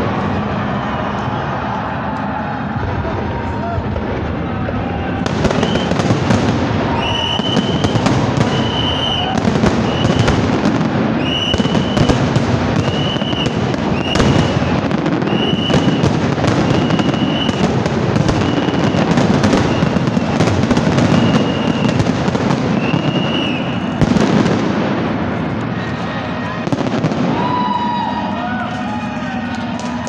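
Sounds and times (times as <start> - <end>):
fireworks bursting and crackling: 0.0 - 30.0.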